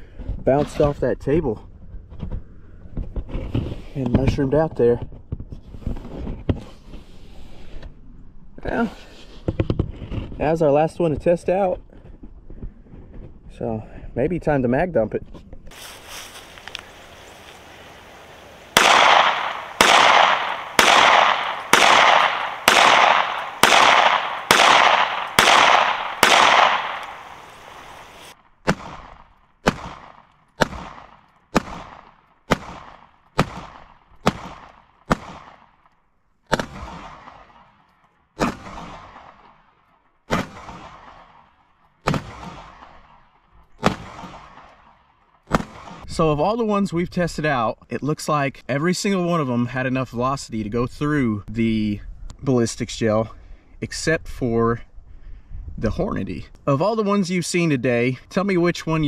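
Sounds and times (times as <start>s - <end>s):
pistol shots: 18.7s - 35.8s, 36.5s - 37.8s, 38.4s - 39.7s, 40.3s - 43.2s, 43.8s - 46.1s.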